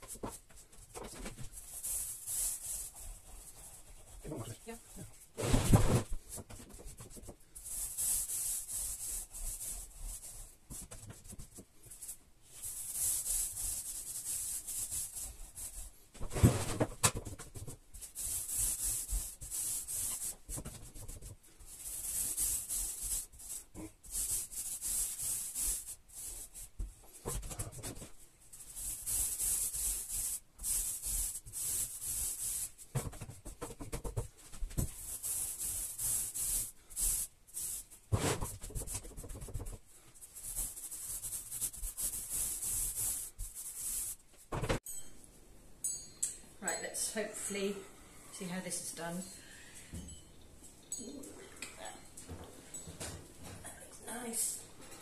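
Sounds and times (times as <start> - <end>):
paint roller hissing on wall: 1.5 - 16.7, 17.9 - 27.3, 28.5 - 33.0, 34.7 - 44.2.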